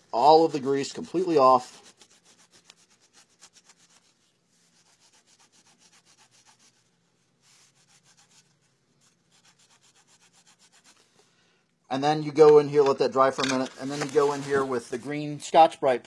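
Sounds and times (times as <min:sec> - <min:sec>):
paper towel rubbing: 0:00.2 - 0:11.2, 0:13.7 - 0:15.3.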